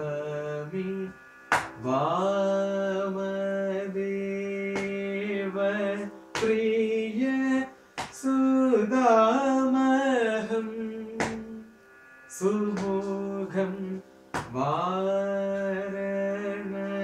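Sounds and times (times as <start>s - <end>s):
man singing: 0.0s - 11.7s, 12.3s - 17.0s
steady drone: 0.0s - 17.0s
hand slaps: 1.5s - 1.8s, 4.8s - 5.0s, 6.4s - 6.6s, 8.0s - 8.2s, 11.2s - 11.4s, 14.4s - 14.6s.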